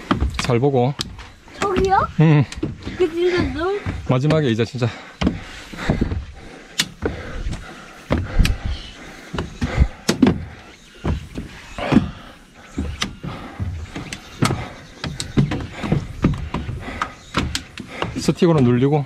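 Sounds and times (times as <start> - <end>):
trekking pole tips clicking: 0.0 - 2.6, 6.7 - 7.6, 8.3 - 8.8, 12.7 - 19.0
footsteps on stairs: 0.0 - 19.0.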